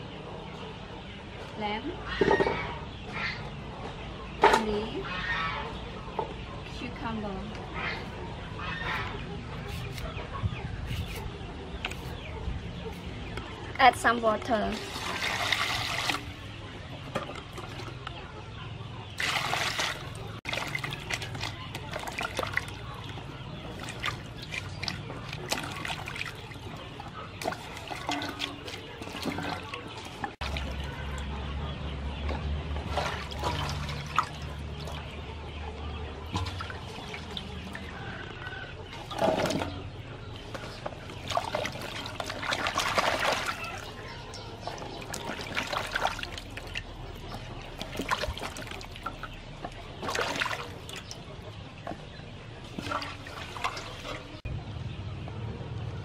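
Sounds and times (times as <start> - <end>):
water splashing in a metal basin: 13.9 - 18.2, 19.2 - 31.4, 32.6 - 35.2, 36.2 - 52.0, 52.6 - 54.5.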